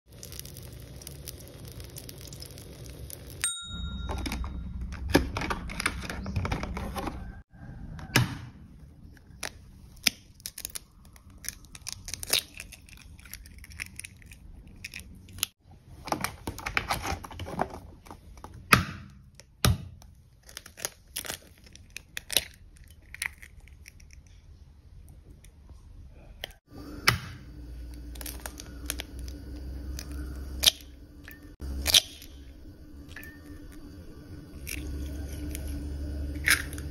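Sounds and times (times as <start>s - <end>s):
eggs cracking on metal bowl: 0.1s - 3.4s, 9.1s - 15.6s, 27.9s - 33.8s, 34.6s - 36.9s.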